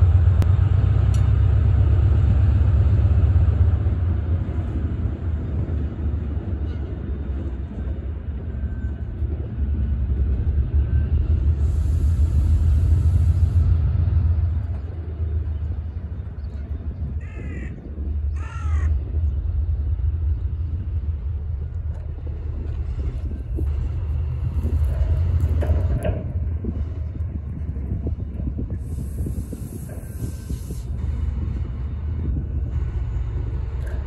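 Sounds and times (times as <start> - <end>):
diesel locomotive rumbling: 0.0 - 34.0
crow cawing: 17.2 - 19.0.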